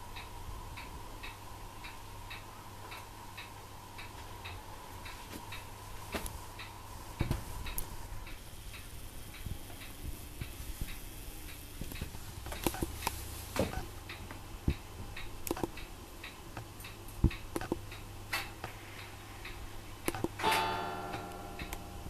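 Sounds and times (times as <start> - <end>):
gecko feeding clicks and taps: 16.6 - 20.4
plucked guitar chord: 20.4 - 22.0.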